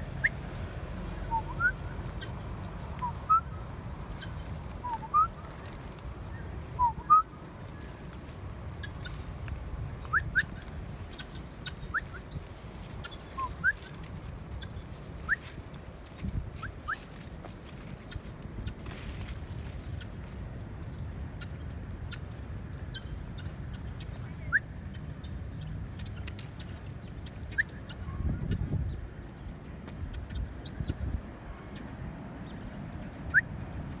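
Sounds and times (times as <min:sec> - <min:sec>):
low steady rumble: 0:00.0 - 0:34.0
guineafowl whistled calls: 0:01.2 - 0:02.0, 0:03.0 - 0:05.5, 0:06.8 - 0:07.4, 0:10.0 - 0:12.4, 0:13.0 - 0:14.0, 0:14.6 - 0:15.5, 0:16.6 - 0:17.1, 0:24.4 - 0:24.8, 0:27.5 - 0:28.6, 0:33.3 - 0:33.6.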